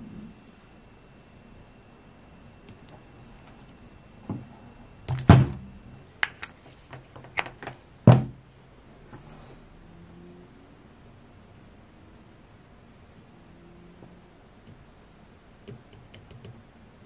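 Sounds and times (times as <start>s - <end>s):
power plug knocks and clicks: 8.1s - 8.4s.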